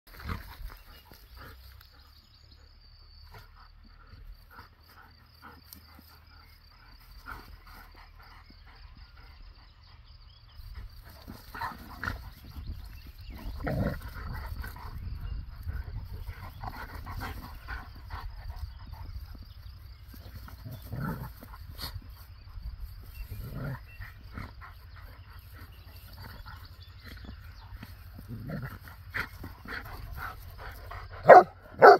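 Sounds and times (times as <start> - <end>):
dogs growling in play: 10.9 - 22.3, 22.9 - 31.9.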